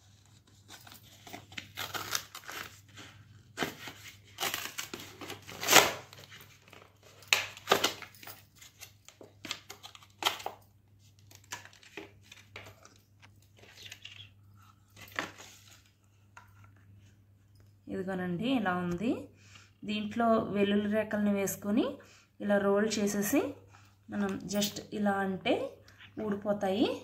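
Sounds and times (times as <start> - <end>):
packaging crinkling and tearing: 0.0 - 14.3.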